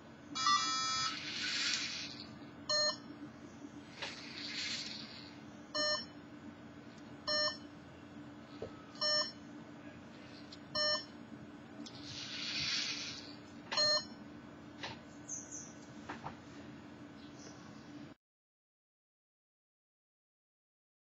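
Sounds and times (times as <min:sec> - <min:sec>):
short electronic beeps: 0:00.4 - 0:01.2, 0:09.0 - 0:09.4, 0:13.8 - 0:14.1.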